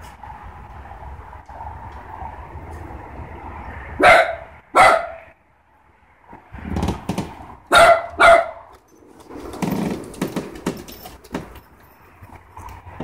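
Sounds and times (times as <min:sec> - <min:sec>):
dog barking: 0:04.0 - 0:05.3, 0:07.7 - 0:08.7
dogs rustling on wooden deck: 0:08.7 - 0:13.0.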